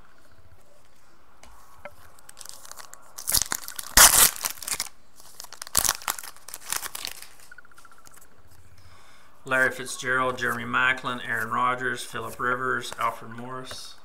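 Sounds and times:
foil wrapper tearing and crinkling: 2.2 - 7.5.

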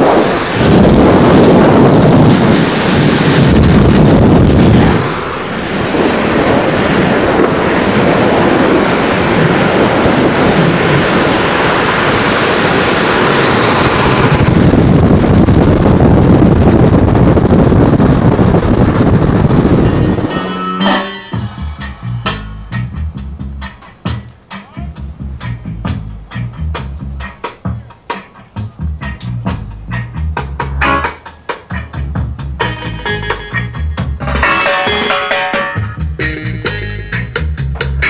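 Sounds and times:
skateboard wheels rolling on asphalt: 0.0 - 20.7
wind rushing over microphone: 0.0 - 38.0.

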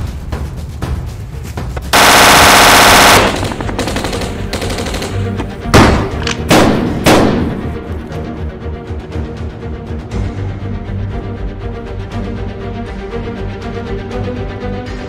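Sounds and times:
background music: 0.0 - 15.0
automatic gunfire burst: 1.9 - 5.3.

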